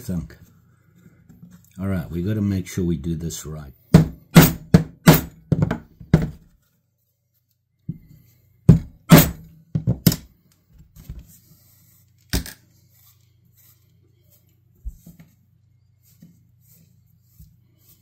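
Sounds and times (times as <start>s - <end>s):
mallet striking metal punch: 4.0s - 5.4s, 8.7s - 9.4s.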